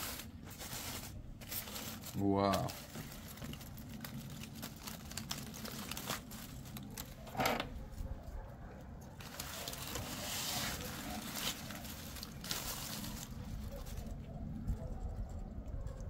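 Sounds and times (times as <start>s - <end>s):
loud crackle: 0.0s - 7.5s, 9.2s - 14.2s
foil and paper crinkling: 0.0s - 8.3s, 9.1s - 14.3s.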